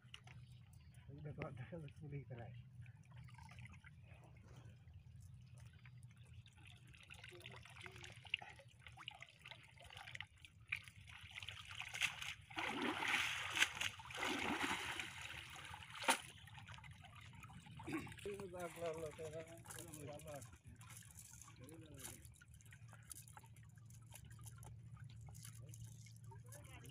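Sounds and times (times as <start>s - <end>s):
water pouring and splashing off net: 6.6s - 26.9s.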